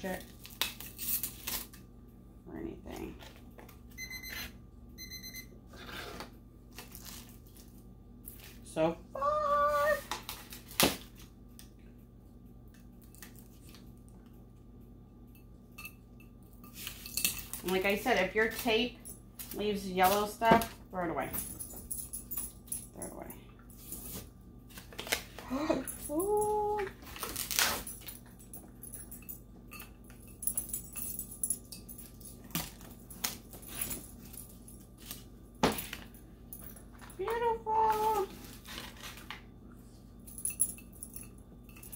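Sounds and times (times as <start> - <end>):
faint steady hum: 0.0 - 41.9
plastic wrap crinkling: 6.7 - 8.6, 26.8 - 27.9.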